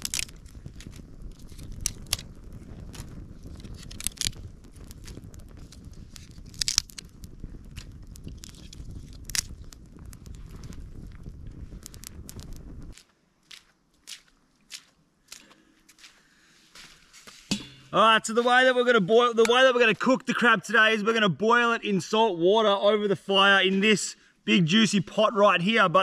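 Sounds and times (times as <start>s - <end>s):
steady low rumble: 0.0s - 13.0s
sharp snaps and pops: 0.0s - 16.1s
campfire crackling: 0.0s - 26.0s.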